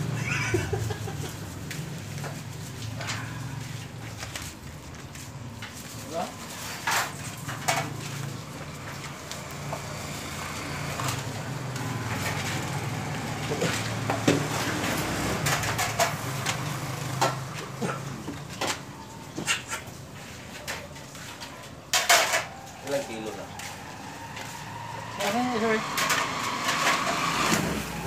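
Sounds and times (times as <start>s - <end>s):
vehicle engine humming: 0.0s - 21.6s.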